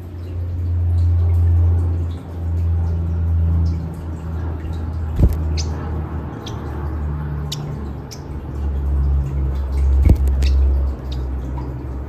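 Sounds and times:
steady low hum: 0:00.0 - 0:12.0
parrot chirping: 0:05.1 - 0:08.4, 0:10.0 - 0:11.4.

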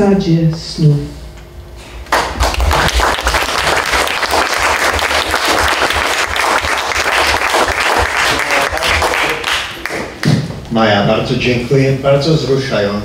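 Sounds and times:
audience applause: 0:02.1 - 0:10.3.

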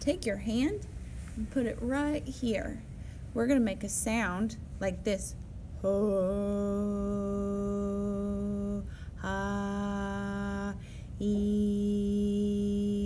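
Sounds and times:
woman humming: 0:05.8 - 0:13.0.

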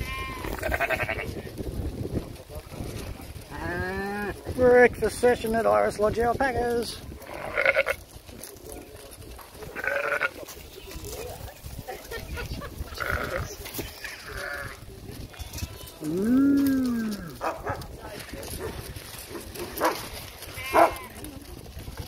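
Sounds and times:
sheep bleating: 0:00.0 - 0:01.5, 0:07.2 - 0:08.0, 0:09.8 - 0:10.5, 0:12.9 - 0:17.4, 0:20.5 - 0:21.3.

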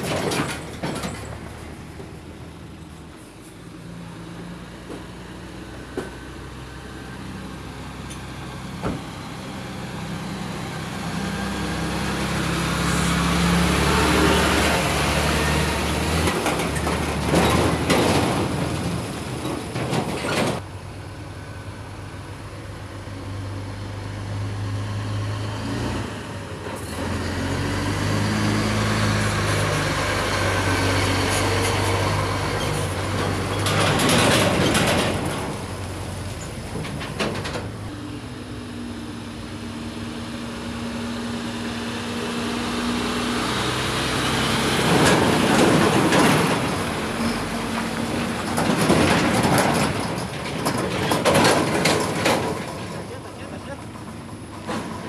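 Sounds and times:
heavy trucks driving past: 0:00.0 - 0:55.0.

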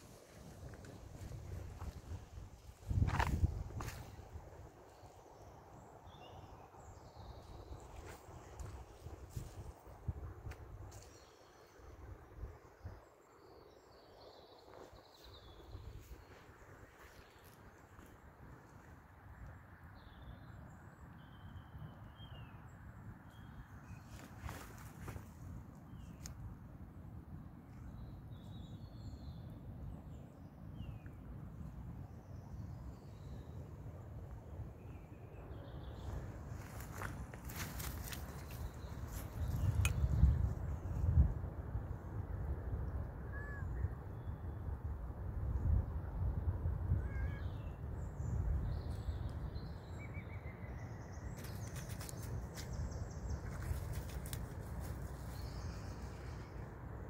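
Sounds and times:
wind noise on microphone: 0:00.0 - 0:04.7, 0:36.0 - 0:49.8
rustling in dry grass: 0:36.1 - 0:39.8, 0:51.4 - 0:56.6
faint high bird calls: 0:43.3 - 0:44.2, 0:46.9 - 0:47.9.

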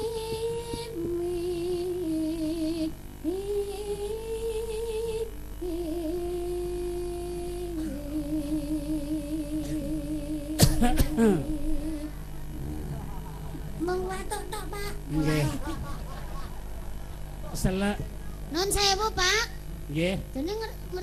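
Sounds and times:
woman singing into a microphone: 0:00.0 - 0:12.2.

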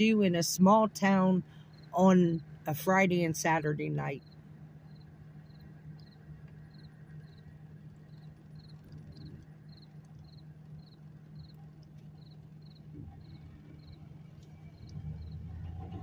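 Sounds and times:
car cabin hum: 0:00.0 - 0:16.0
cricket chirping: 0:01.4 - 0:02.5, 0:04.0 - 0:15.5.

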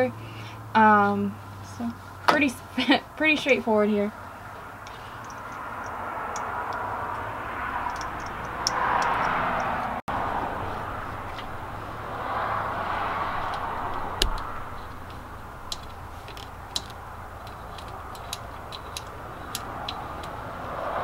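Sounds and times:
steady background noise: 0:00.0 - 0:21.0
plastic connectors clicking: 0:04.8 - 0:09.8, 0:13.4 - 0:20.5.

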